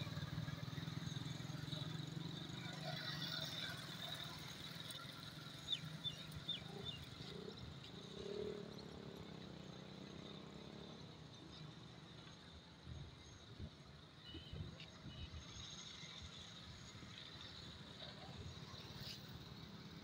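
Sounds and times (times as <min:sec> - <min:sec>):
motorcycle and rickshaw traffic hum: 0:00.0 - 0:20.0.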